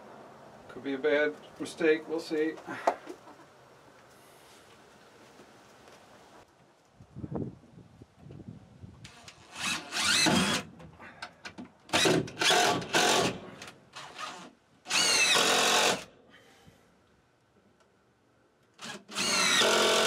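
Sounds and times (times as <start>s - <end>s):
cordless drill driving screws: 9.1s - 10.7s, 11.9s - 16.1s, 18.8s - 20.0s.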